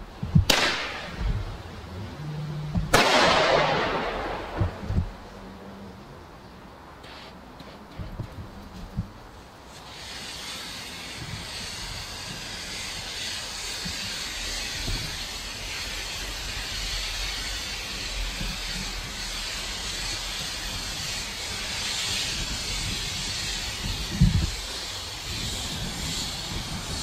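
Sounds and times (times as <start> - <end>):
firework spraying hiss: 0.0 - 5.4, 8.8 - 27.0
sharp pops: 0.2 - 1.4, 2.7 - 5.2.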